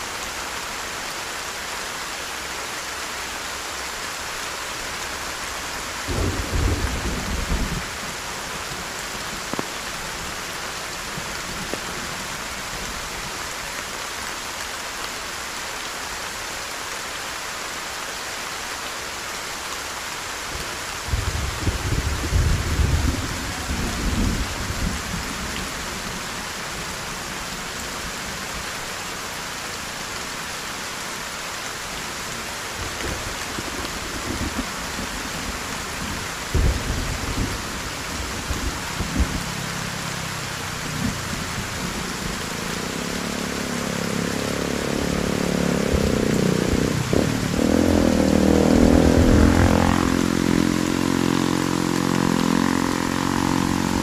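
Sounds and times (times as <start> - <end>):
heavy rain: 0.0 - 54.0
vehicle engine approaching: 41.8 - 54.0.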